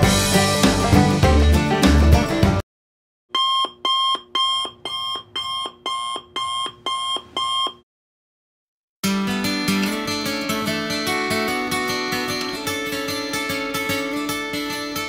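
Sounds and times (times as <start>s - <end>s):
shrill electronic alarm beeps: 3.3s - 7.8s.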